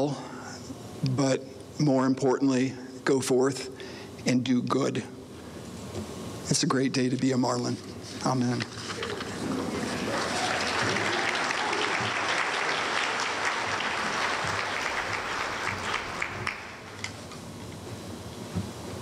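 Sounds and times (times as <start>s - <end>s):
audience applauding: 8.9s - 17.0s.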